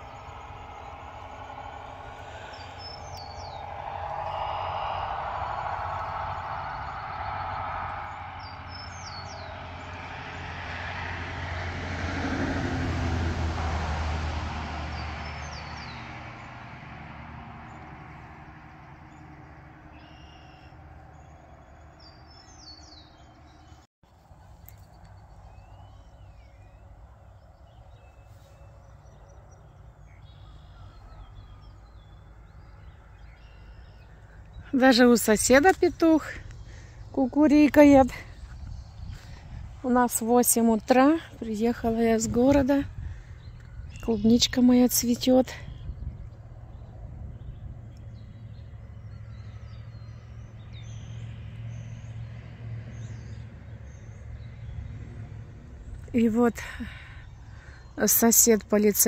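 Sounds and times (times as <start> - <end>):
birds chirping: 0.0 - 11.6, 14.8 - 59.0
vehicle passing: 0.0 - 24.4, 25.0 - 57.1.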